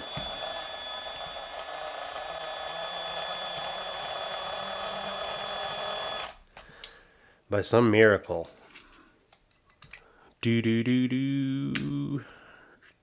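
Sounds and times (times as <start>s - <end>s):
electric drill whining: 0.0s - 6.4s.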